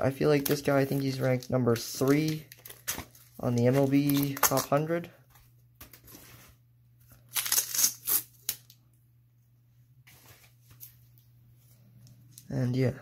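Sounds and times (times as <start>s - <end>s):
plastic crackling: 0.2s - 4.9s
plastic rustling: 0.2s - 6.6s.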